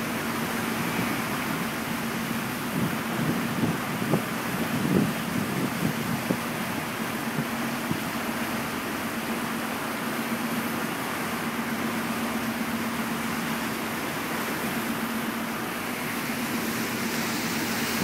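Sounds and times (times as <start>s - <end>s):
churning wake rushing: 0.0s - 18.0s
ferry engine humming: 0.0s - 18.0s
wind on microphone: 2.6s - 8.1s.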